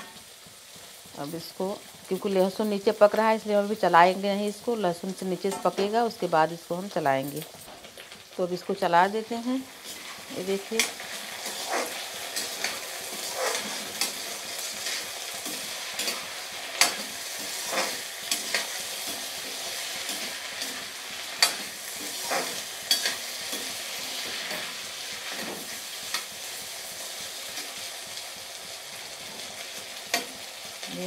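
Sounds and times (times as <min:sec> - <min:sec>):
potatoes sizzling in oil: 0:00.0 - 0:31.0
metal ladle scraping a pan: 0:09.8 - 0:25.8.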